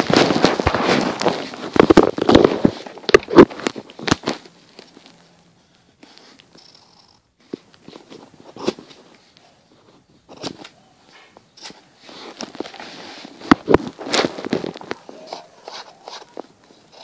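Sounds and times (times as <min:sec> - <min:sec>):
paper crackling and rustling: 0:00.0 - 0:05.3, 0:11.6 - 0:17.0.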